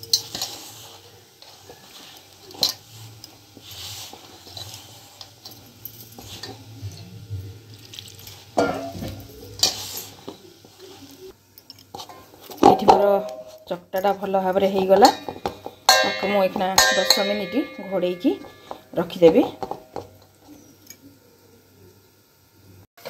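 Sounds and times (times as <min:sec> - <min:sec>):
flour scraping in steel bowl: 0:00.0 - 0:07.1, 0:07.7 - 0:11.3, 0:11.9 - 0:20.8
clinks against metal bowl: 0:11.6 - 0:20.1.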